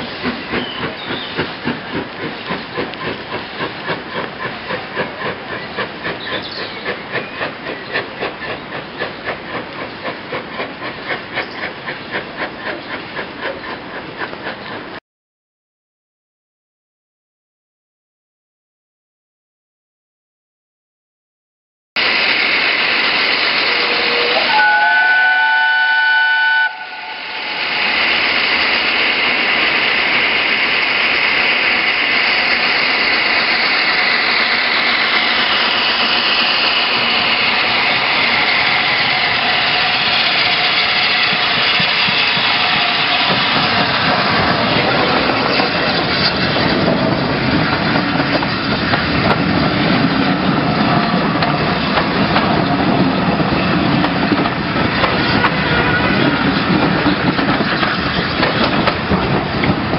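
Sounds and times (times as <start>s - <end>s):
steam whistle: 23.6s - 27.8s.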